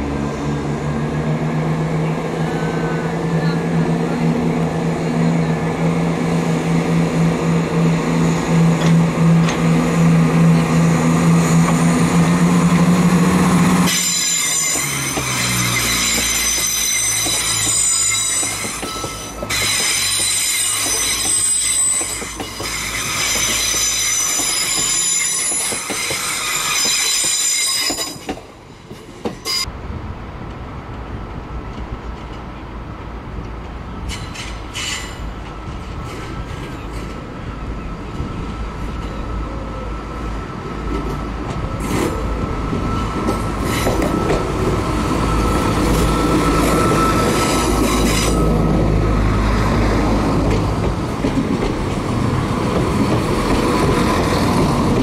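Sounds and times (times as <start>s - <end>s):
diesel train engines running: 0.0s - 55.0s
train rumble: 0.0s - 55.0s
wheels squealing on track: 13.9s - 28.3s.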